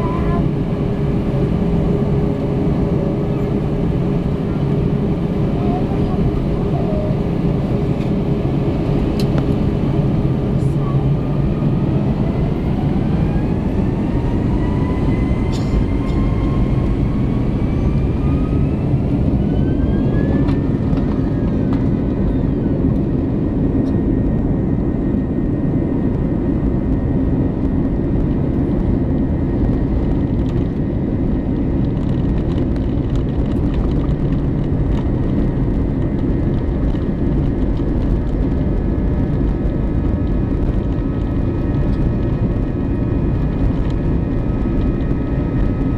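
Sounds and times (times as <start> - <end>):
heavy even rumble: 0.0 - 45.9
jet engines whine: 0.0 - 45.9.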